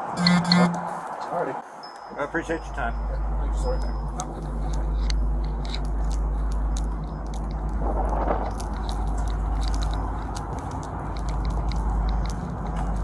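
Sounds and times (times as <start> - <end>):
wind rumble on microphone: 2.9 - 13.0.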